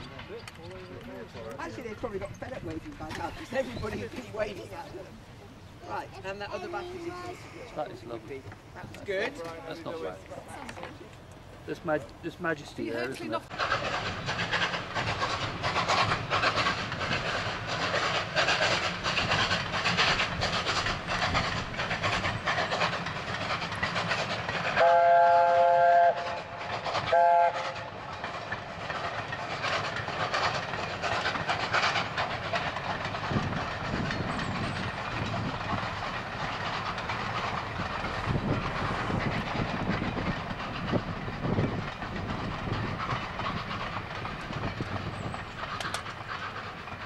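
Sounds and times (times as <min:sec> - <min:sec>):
train coaches rumbling past: 0:00.0 - 0:47.0
steam locomotive exhaust beating: 0:11.1 - 0:47.0.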